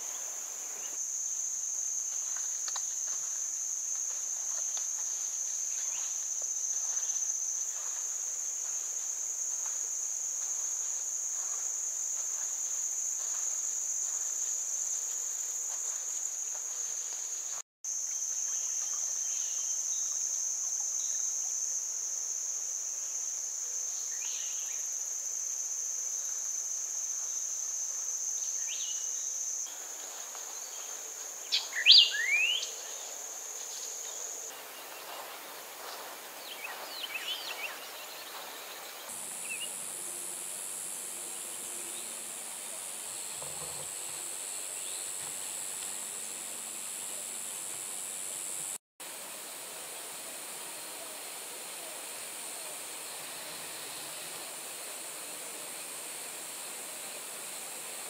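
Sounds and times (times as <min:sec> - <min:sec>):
insects droning: 0:00.0 - 0:58.0
bird chirps: 0:31.5 - 0:32.7.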